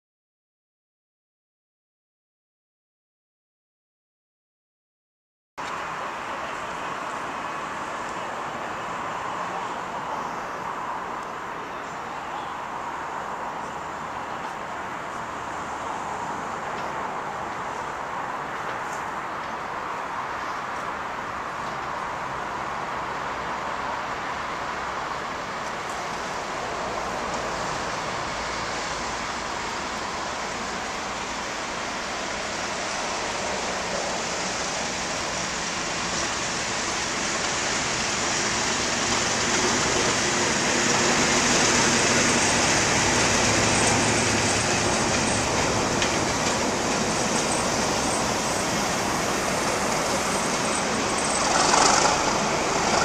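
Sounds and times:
diesel locomotive passing: 5.7s - 53.0s
train wheels clattering on rails: 27.0s - 53.0s.

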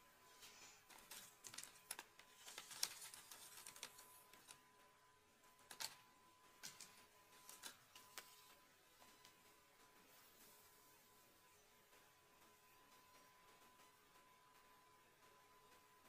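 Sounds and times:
hair rustling and clicking: 0.5s - 4.6s.

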